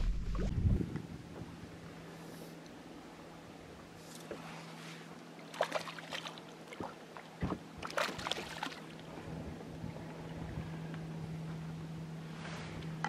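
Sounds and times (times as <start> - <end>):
steady low hum: 0.0 - 13.0
fish splashing at water surface: 5.4 - 7.0, 7.8 - 9.0.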